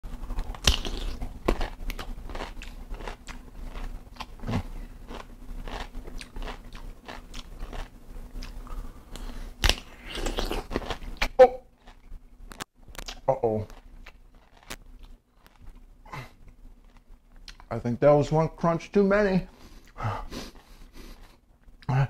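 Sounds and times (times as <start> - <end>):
crunching pickle: 0.1 - 17.7.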